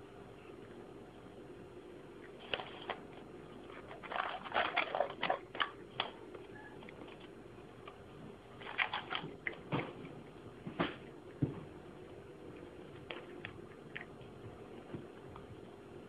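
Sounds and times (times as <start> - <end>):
cat chewing wet food: 11.0 - 15.7.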